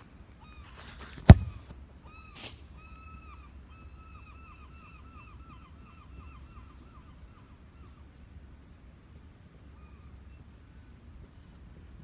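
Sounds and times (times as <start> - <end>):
bird calling: 0.4 - 8.0.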